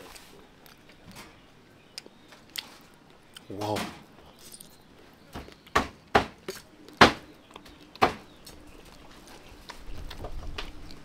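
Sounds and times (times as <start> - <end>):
sharp knocks: 5.4 - 6.4, 7.0 - 7.2.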